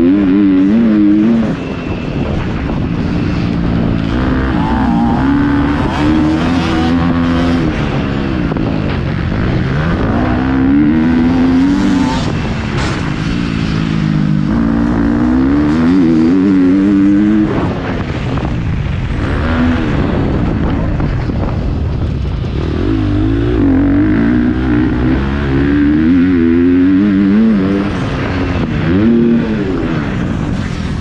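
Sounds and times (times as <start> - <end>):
motocross bike engine revving: 0.0 - 1.6, 3.3 - 17.9, 22.3 - 31.0.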